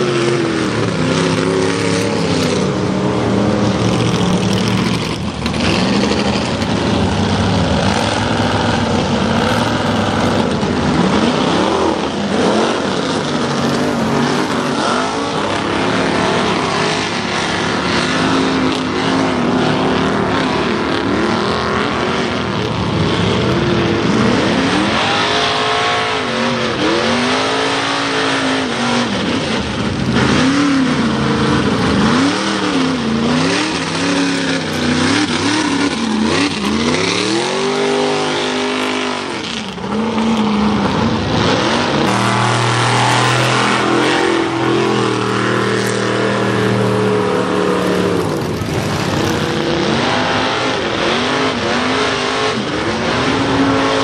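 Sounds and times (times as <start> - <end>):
truck engines revving: 0.0 - 54.0
trucks running steadily: 0.0 - 54.0.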